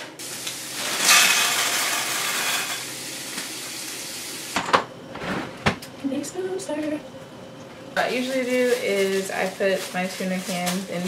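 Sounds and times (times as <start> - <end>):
food sizzling in a pan: 0.2 - 4.6.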